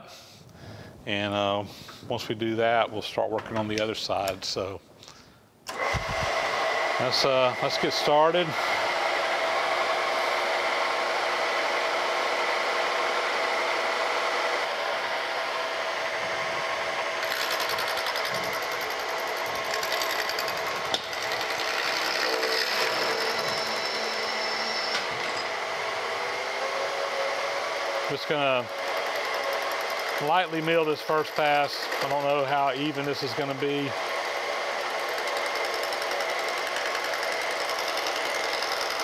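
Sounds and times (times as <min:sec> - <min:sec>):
milling machine hum: 0:05.7 - 0:30.6, 0:33.9 - 0:39.0.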